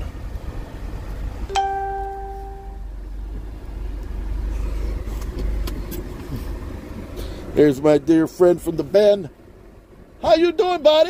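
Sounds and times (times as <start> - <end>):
vehicle engine idling: 0.0 - 11.0
single pitched tone: 1.5 - 2.9.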